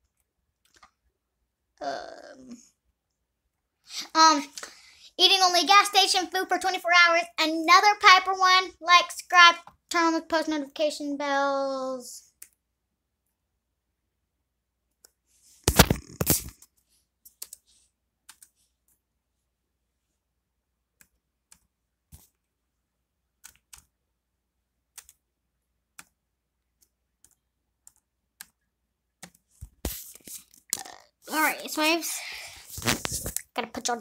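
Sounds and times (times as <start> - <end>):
computer clicks: 18.3 - 18.6, 24.9 - 25.2.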